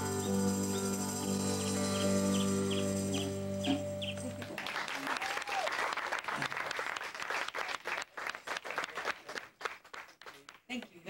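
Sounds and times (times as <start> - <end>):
rock band holding chord: 0.0 - 4.9
small audience applauding: 4.0 - 11.0
person whooping: 5.0 - 5.8.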